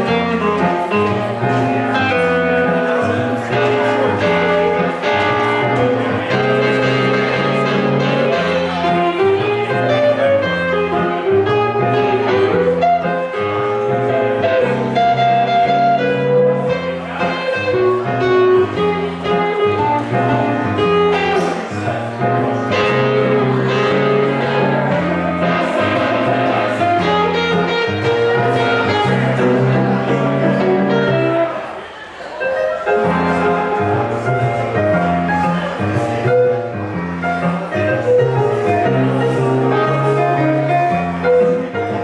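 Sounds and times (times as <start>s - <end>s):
repeating low bass notes: 0.0s - 31.6s
electric guitar: 0.0s - 31.7s
keyboard: 0.0s - 42.0s.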